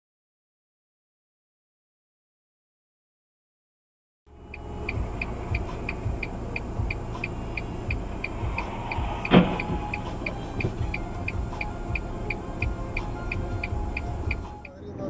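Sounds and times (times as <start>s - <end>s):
car engine idling: 4.3s - 14.7s
turn signal ticking: 4.3s - 14.8s
car crash: 7.1s - 12.0s.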